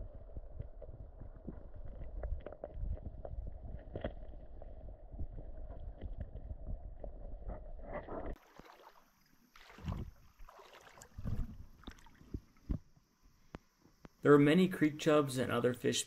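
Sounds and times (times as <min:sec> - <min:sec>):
muffled underwater creek rumble: 0:00.0 - 0:13.0
shallow creek water: 0:00.0 - 0:14.1
hand splashing in water: 0:08.4 - 0:12.8.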